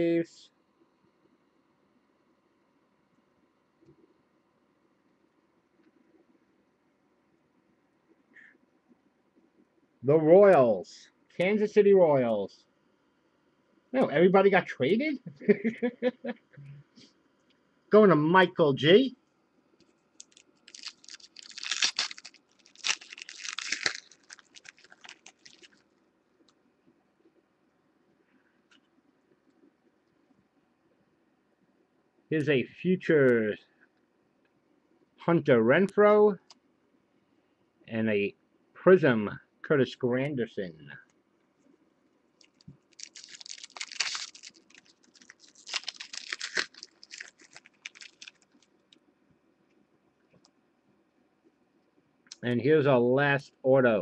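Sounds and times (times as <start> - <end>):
card pack wrapper crinkling: 20.2 - 25.8, 42.4 - 48.8
cards clicking and rustling: 20.2 - 25.8, 42.4 - 48.6.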